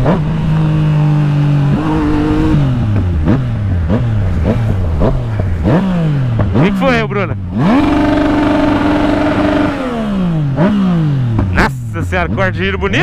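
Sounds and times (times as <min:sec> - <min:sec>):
wind rush on microphone: 0:00.0 - 0:10.2
motorcycle engine revving: 0:00.0 - 0:13.0.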